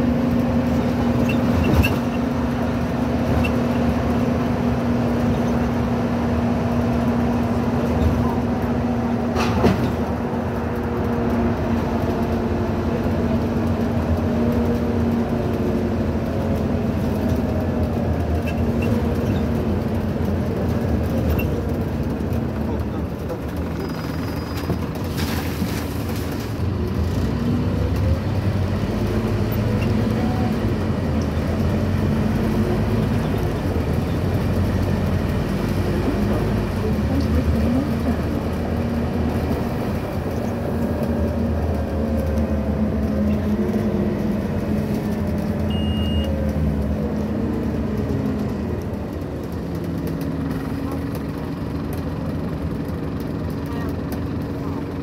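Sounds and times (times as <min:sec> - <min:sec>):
bus diesel engine: 0:00.0 - 0:55.0
road noise: 0:00.0 - 0:55.0
brief high beep: 0:45.7 - 0:46.3.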